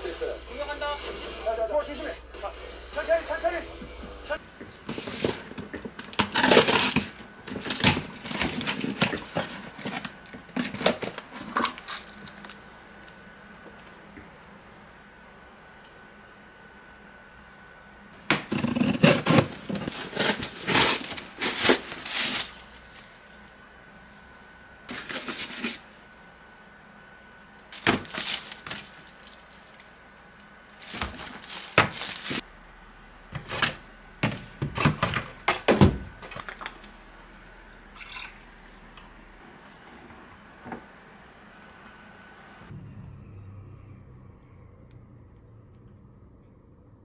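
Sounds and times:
plastic packaging crinkling: 4.8s - 12.6s, 18.5s - 23.3s, 24.9s - 25.8s, 27.7s - 29.9s, 30.7s - 32.4s.

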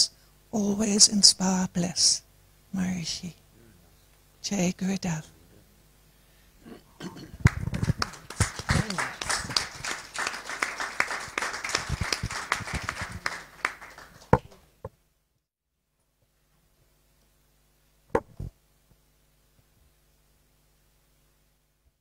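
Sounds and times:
audience applauding: 7.4s - 14.6s.

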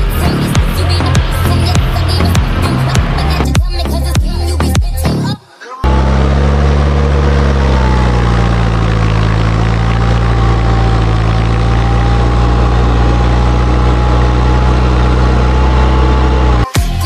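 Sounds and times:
tractor diesel engine running: 0.0s - 5.1s, 5.8s - 17.0s.

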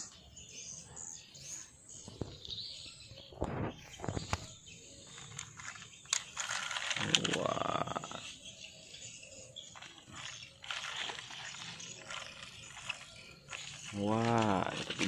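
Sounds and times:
toy truck clicks and knocks: 4.3s - 8.0s
toy motor rising whine: 4.9s - 15.0s.

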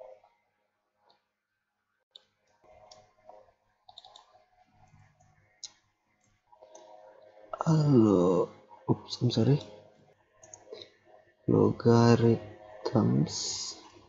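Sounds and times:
computer keyboard typing: 3.9s - 4.3s.

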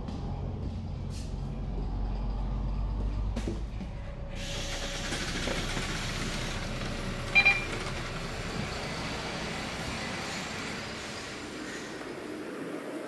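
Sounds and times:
bus running noise and hiss: 0.0s - 13.0s
double electronic beep: 7.4s - 7.7s.

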